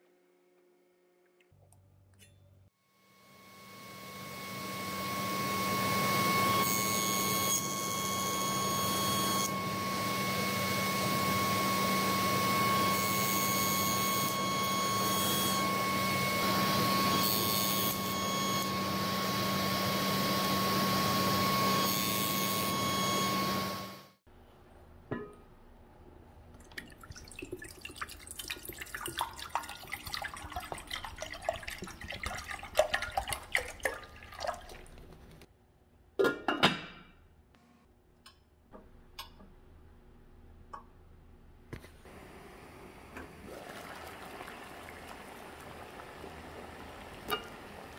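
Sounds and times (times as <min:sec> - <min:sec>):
table saw cutting wood: 0:03.4 - 0:24.1
water pouring into a pot: 0:26.6 - 0:35.2, 0:43.3 - 0:47.9.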